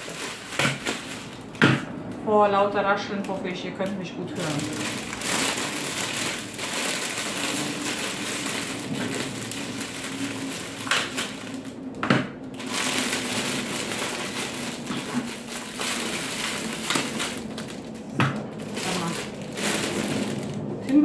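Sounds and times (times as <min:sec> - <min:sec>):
cellophane snaps: 0:00.0 - 0:01.6, 0:04.7 - 0:11.8, 0:12.6 - 0:20.5
cellophane crinkling and rustling: 0:00.0 - 0:01.7, 0:04.3 - 0:21.0.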